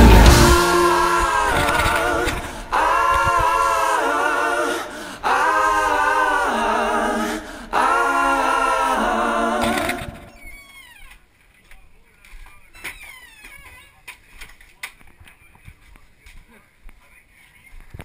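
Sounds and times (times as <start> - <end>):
unaccompanied sung chords: 0.0 - 10.4.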